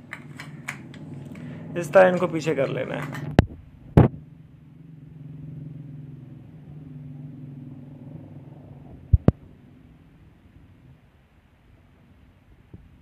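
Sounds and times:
vehicle engine humming: 0:00.0 - 0:12.2.

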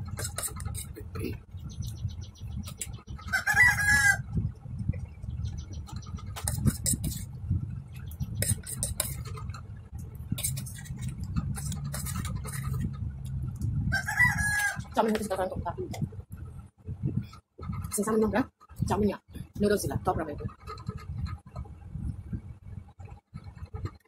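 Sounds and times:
rooster crowing: 0:03.3 - 0:04.2, 0:13.9 - 0:14.9.

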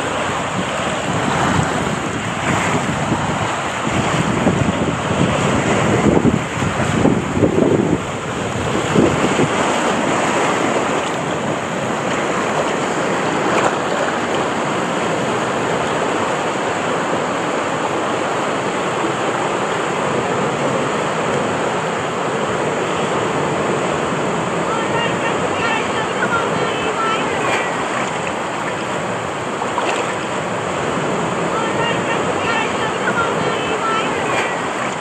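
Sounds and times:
water rushing down slide: 0:00.0 - 0:35.0
wind buffeting microphone: 0:00.0 - 0:35.0
water splashing around tube: 0:27.0 - 0:31.4, 0:34.1 - 0:35.0.

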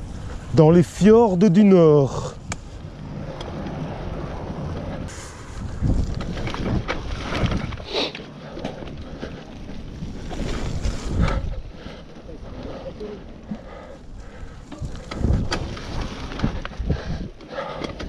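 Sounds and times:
wind buffeting microphone: 0:00.0 - 0:18.0
bike rattling and knocking: 0:05.7 - 0:18.0.

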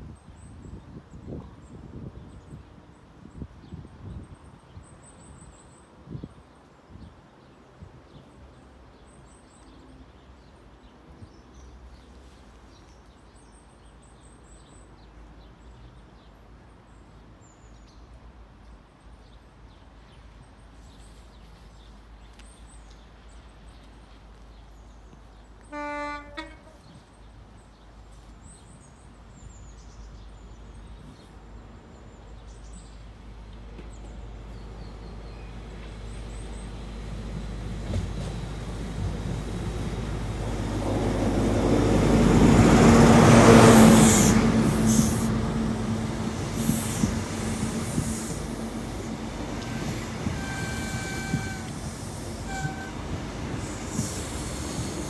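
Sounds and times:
train horn blast: 0:25.7 - 0:27.0, 0:46.6 - 0:55.0
diesel train rumble: 0:29.0 - 0:55.0.

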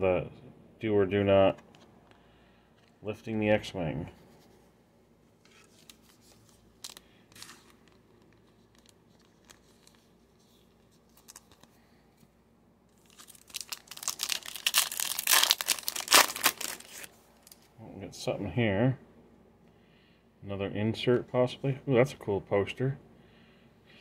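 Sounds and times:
foil wrapper tearing and crinkling: 0:13.0 - 0:17.6.

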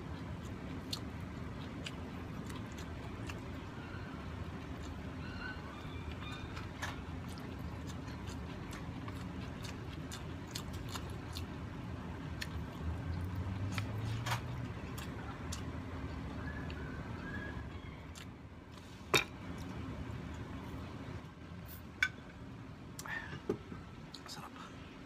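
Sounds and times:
close chewing with mouth clicks: 0:00.0 - 0:18.4.

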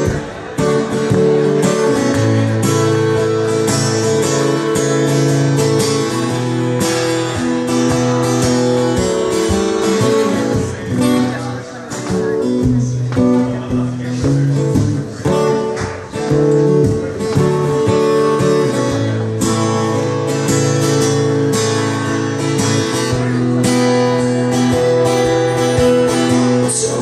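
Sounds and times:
acoustic guitar strumming chords: 0:00.0 - 0:27.0.

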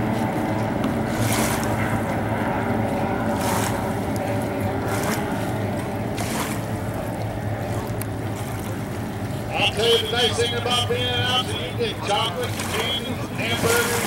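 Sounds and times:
racing boat engines droning: 0:00.0 - 0:14.0
noisy bursts: 0:09.4 - 0:14.0.

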